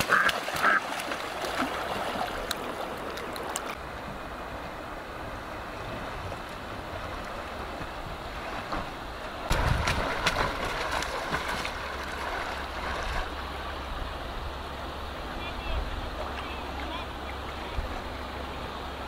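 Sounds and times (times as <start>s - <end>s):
splashing and knocks: 0.0s - 3.7s, 9.5s - 13.3s
water rushing and lapping: 0.0s - 19.0s.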